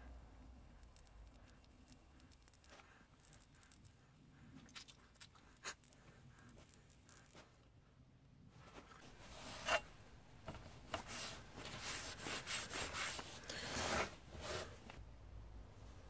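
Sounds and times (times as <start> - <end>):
hand scrubbing a metal blade: 9.3 - 10.0.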